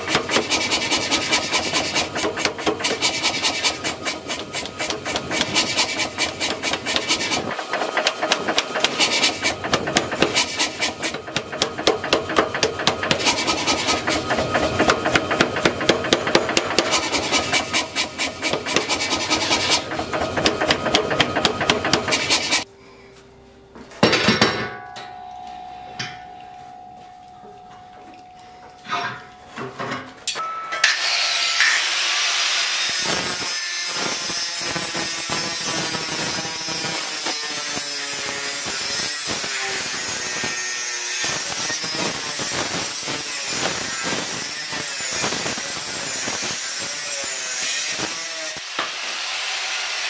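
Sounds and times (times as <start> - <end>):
hand hammer on tongs: 0.0 - 22.6, 24.0 - 31.8
power hammer pounding steel: 0.0 - 22.6
hammer strike on steel ringing: 24.1 - 31.8.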